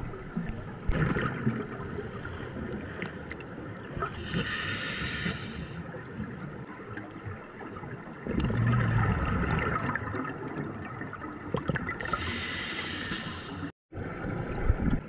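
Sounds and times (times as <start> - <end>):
regulator bubbles gurgling: 0.0 - 4.4, 5.9 - 12.4
steady underwater hiss: 1.8 - 6.3, 12.0 - 13.7.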